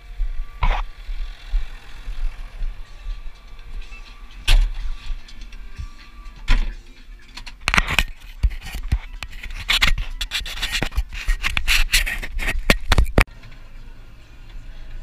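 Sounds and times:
tractor engine humming: 0:00.0 - 0:08.5
camera handling scrapes and knocks: 0:07.6 - 0:13.3.

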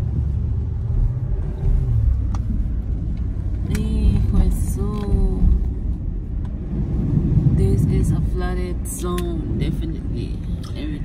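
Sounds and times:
tyres rumbling on wet road: 0:00.0 - 0:11.0.

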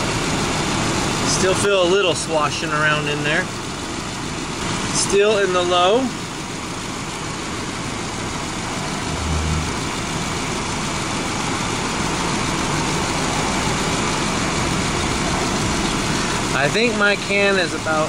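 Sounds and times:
car engine idling: 0:00.0 - 0:18.0
deeper hum: 0:07.7 - 0:11.4.

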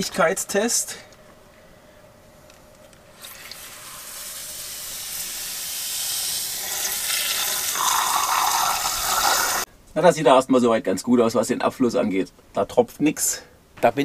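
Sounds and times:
shower water spraying into tray: 0:03.2 - 0:09.6.

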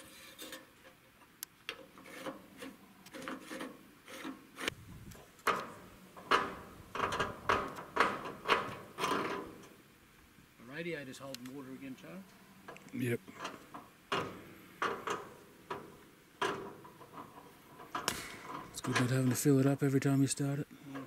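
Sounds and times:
rasping metal lever strokes: 0:01.8 - 0:04.8.

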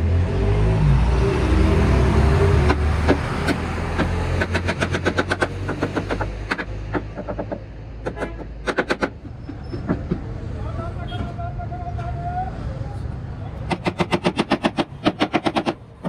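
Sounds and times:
hammer knocking on wood: 0:02.7 - 0:10.3.

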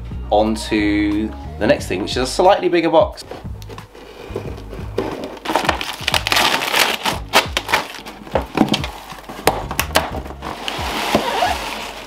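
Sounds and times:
cardboard rustling: 0:03.2 - 0:12.0
packing tape ripping: 0:03.6 - 0:12.0.

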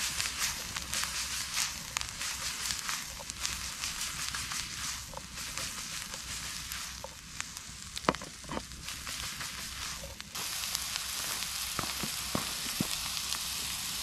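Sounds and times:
onions sizzling in a frying pan: 0:00.0 - 0:14.0
sharp clicks and knocks: 0:08.0 - 0:08.7.

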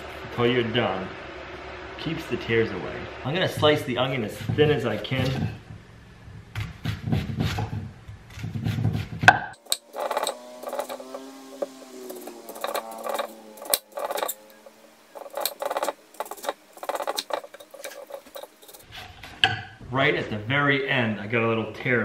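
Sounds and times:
knife chopping on wooden board: 0:06.6 - 0:14.4, 0:15.2 - 0:18.8.

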